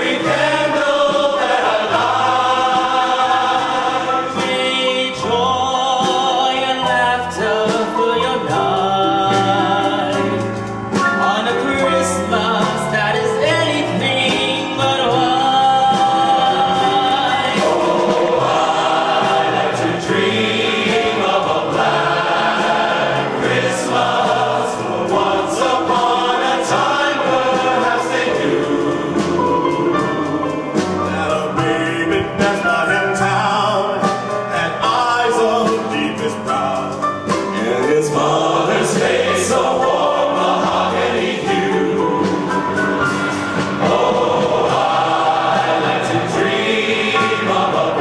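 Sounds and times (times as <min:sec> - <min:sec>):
men's chorus singing: 0:00.0 - 0:10.5, 0:11.2 - 0:48.0
man singing into microphone: 0:04.4 - 0:10.4.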